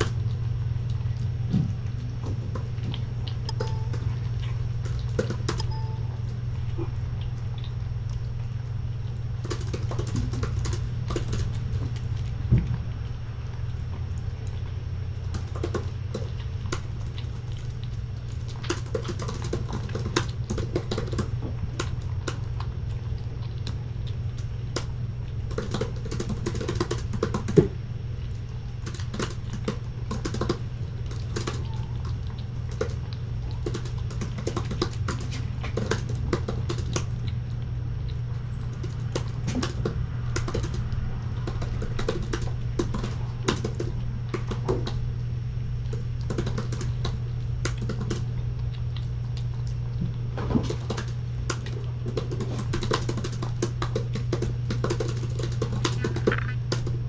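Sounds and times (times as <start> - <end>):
steady low hum: 0.0 - 57.0
laptop keyboard typing: 5.0 - 6.1, 25.5 - 27.6, 28.8 - 30.6, 38.8 - 44.7, 46.3 - 48.2, 50.9 - 56.9.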